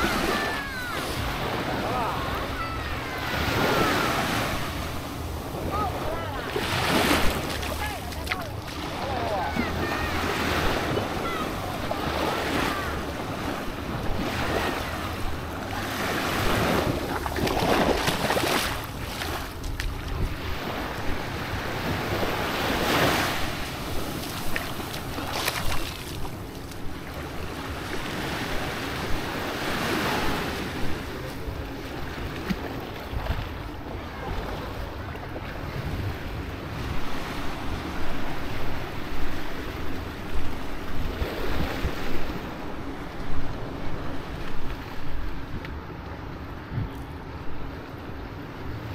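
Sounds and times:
small waves washing on shore: 0:00.0 - 0:48.9.

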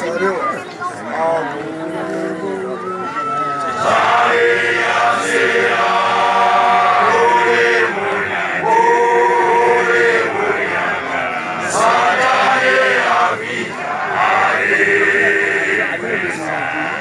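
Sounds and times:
group of voices chanting: 0:01.7 - 0:17.0.

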